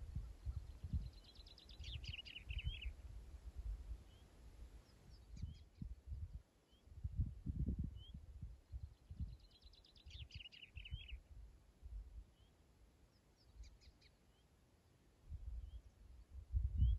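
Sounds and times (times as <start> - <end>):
songbird chirping: 0.0 - 3.2, 3.9 - 7.0, 7.9 - 16.9
wind rumbling on microphone: 0.0 - 12.2, 15.2 - 16.9
bird trill: 1.1 - 2.9.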